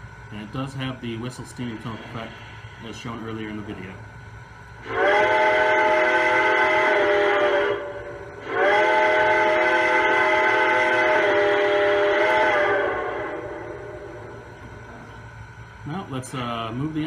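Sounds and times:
steam hissing: 1.0s - 3.9s, 4.8s - 15.1s
steam whistle blasts: 4.8s - 14.5s.

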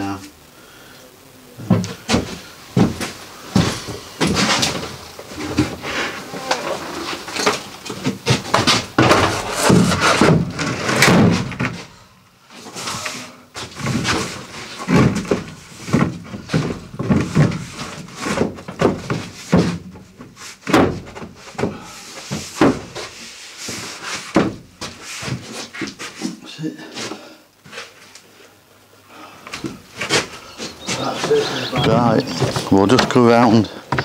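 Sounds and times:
board scraping against frame: 1.7s - 11.8s
wooden panel knocks and bumps: 8.0s - 11.8s, 14.8s - 23.0s, 24.3s - 24.8s.

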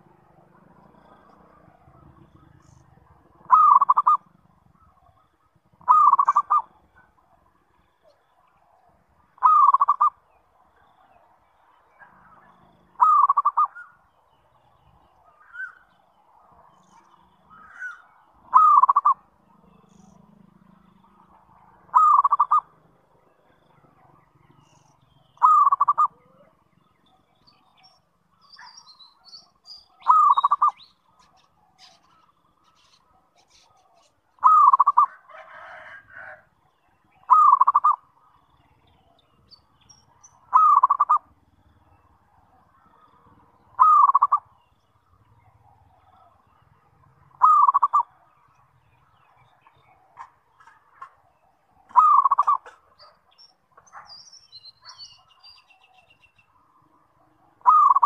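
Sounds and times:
dove cooing: 1.2s - 7.5s, 9.4s - 10.2s, 13.0s - 14.0s, 17.5s - 19.7s, 21.0s - 22.8s, 25.4s - 26.6s, 30.0s - 36.4s, 37.2s - 38.0s, 40.4s - 41.4s, 42.4s - 44.5s, 47.1s - 48.2s, 49.7s - 54.1s, 57.6s - 58.0s.

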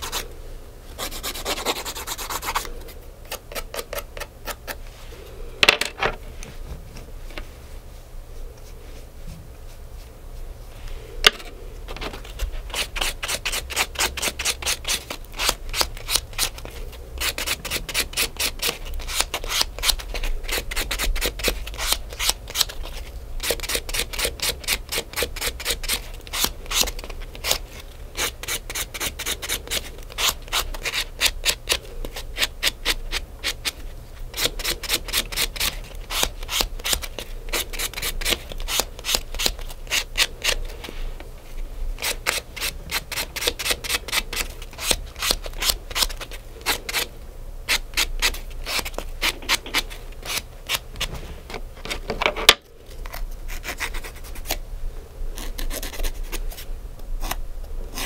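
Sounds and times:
nail file scraping fingernail: 1.0s - 4.8s, 12.4s - 27.6s, 28.2s - 40.7s, 42.0s - 47.1s, 53.1s - 54.6s, 55.4s - 56.6s.

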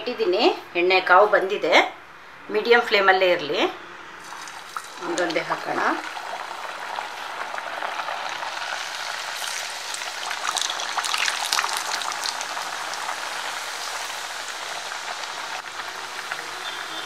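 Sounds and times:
hot oil sizzling and crackling: 4.2s - 17.0s.

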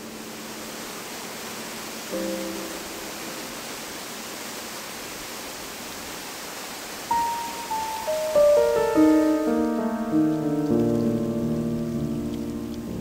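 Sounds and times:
heavy rain hiss: 0.0s - 13.0s
sustained keyboard chord: 7.1s - 13.0s.

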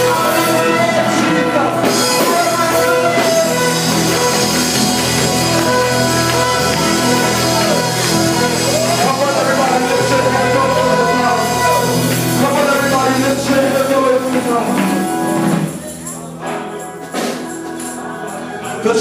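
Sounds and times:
gospel group singing: 0.0s - 19.0s
sustained instrumental backing: 0.0s - 19.0s.

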